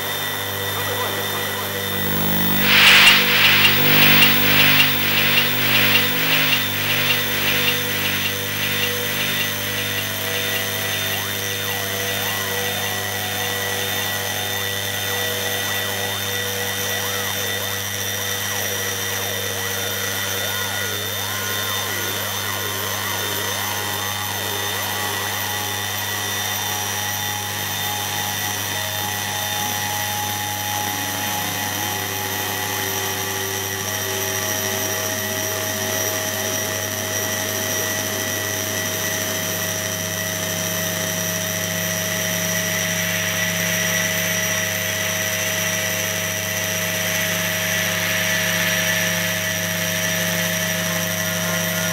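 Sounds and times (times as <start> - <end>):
high held electronic whines: 1.6 - 12.4
warbling electronic tones: 1.8 - 11.6
low electronic hum: 1.8 - 11.8.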